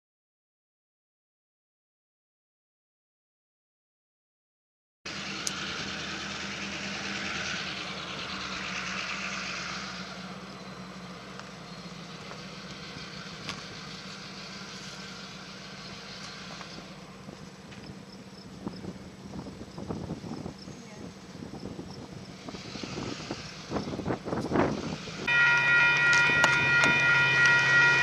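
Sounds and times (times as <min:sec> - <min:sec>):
steady engine hum: 0:05.1 - 0:28.0
rushing noise: 0:21.7 - 0:28.0.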